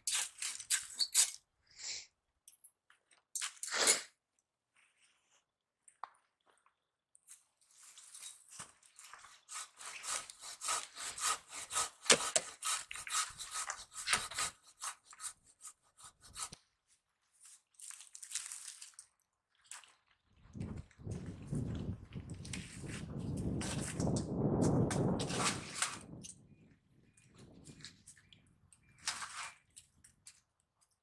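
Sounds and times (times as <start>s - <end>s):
hand saw cutting wood: 9.3s - 16.6s.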